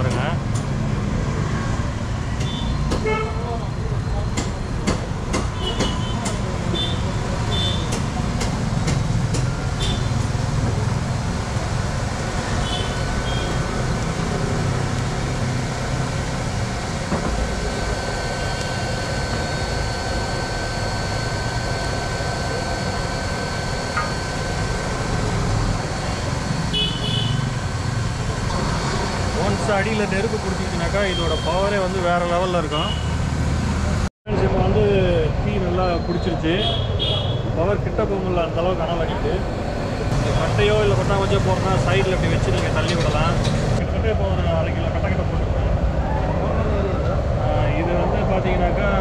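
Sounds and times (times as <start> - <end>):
street traffic: 0.0 - 49.0
wood fire roaring in stove: 6.8 - 32.0, 39.6 - 43.8
electric blower: 10.1 - 29.6.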